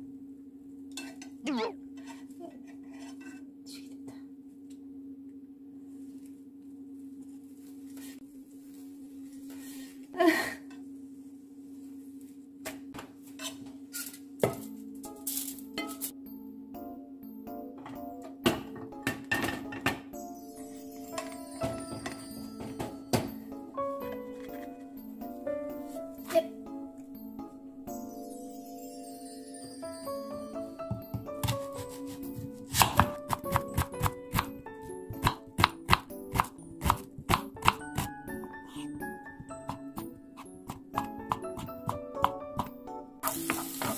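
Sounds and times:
steady low hum: 0.0 - 15.1
pan scraping: 1.9 - 3.5
knife chopping onion on wooden board: 30.9 - 43.9.

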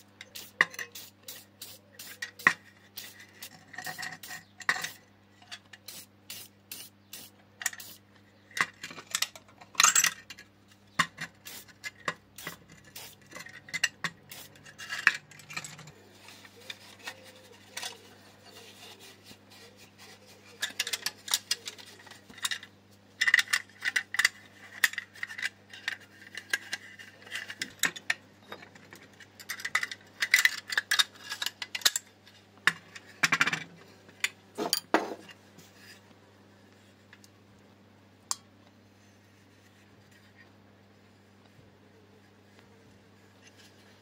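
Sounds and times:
faint steady hum: 0.0 - 44.0
small metal parts clinking: 11.1 - 16.0.

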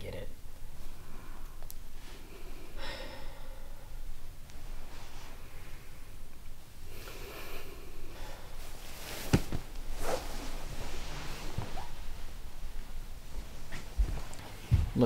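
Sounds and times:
heavy breath: 0.8 - 6.2, 6.8 - 9.2
clothes rustling: 4.2 - 6.8, 8.0 - 15.0.

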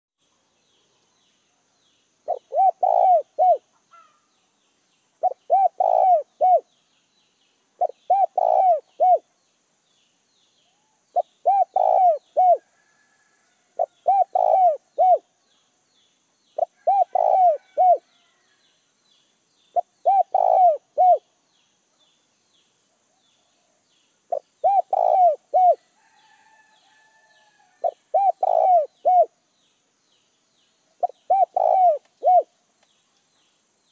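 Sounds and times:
dove cooing: 2.3 - 4.2, 5.2 - 6.7, 7.8 - 9.2, 11.2 - 12.6, 13.8 - 15.3, 16.6 - 18.1, 19.8 - 21.3, 24.3 - 25.8, 27.8 - 29.3, 31.0 - 32.5.

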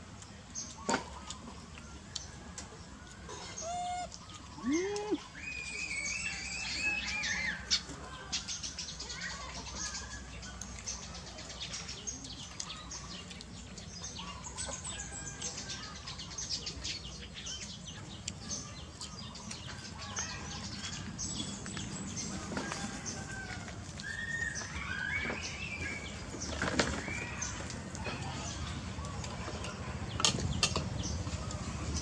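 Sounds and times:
squeaky rising-and-falling calls: 3.4 - 7.8, 24.0 - 25.8.

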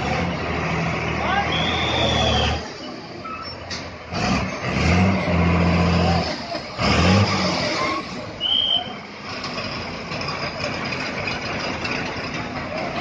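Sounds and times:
people's voices: 0.0 - 4.1
bus engine idling: 0.0 - 13.0.

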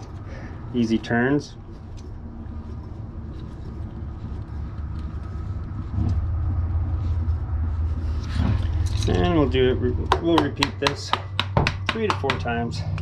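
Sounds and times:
low rumble: 1.6 - 10.1.

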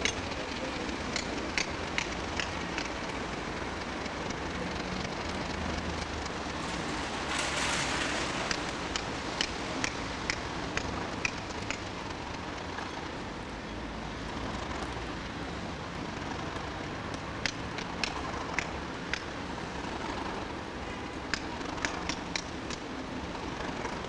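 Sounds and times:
sharp clicks: 0.0 - 13.0, 17.1 - 19.3, 21.3 - 22.9
diesel locomotive engines rumbling: 0.0 - 24.0
steady hiss: 0.0 - 24.0.

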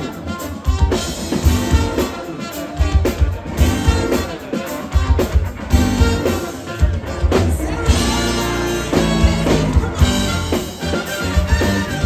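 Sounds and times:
electric bass: 0.0 - 2.2, 2.8 - 12.0
drum kit: 0.0 - 12.0
electric guitars: 0.0 - 12.0
saxophones and brass: 0.0 - 12.0.

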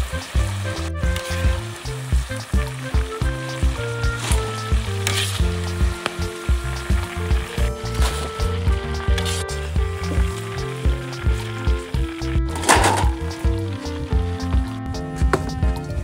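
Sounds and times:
oil sizzling and bubbling: 0.0 - 16.0
metal spatula scraping wok: 3.5 - 11.7, 12.5 - 13.5.

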